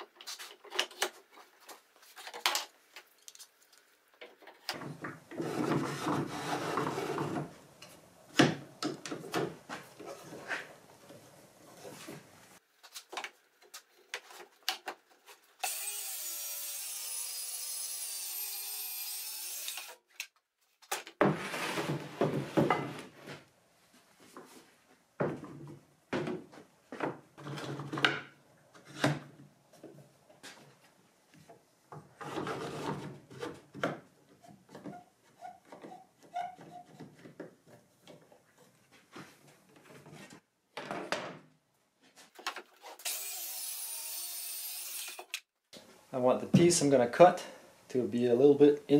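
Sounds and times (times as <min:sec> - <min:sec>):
wood and rail scraping on workbench: 0:05.3 - 0:07.6.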